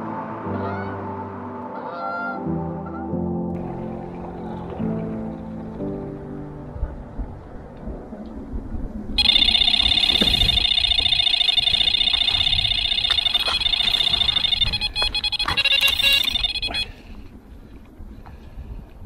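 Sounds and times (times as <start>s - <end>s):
knocks and clicks: 9.2s - 16.8s
rapid high-pitched alarm beeps: 9.2s - 17.0s.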